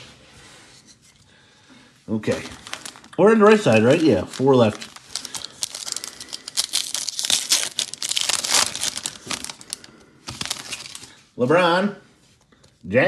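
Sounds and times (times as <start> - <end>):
foil wrapper crinkling and tearing: 2.2 - 11.2.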